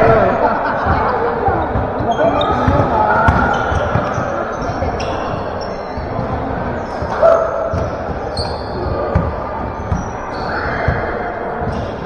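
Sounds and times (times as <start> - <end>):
sneakers squeaking on court: 0.0 - 12.0
basketball dribbling thuds: 0.8 - 12.0.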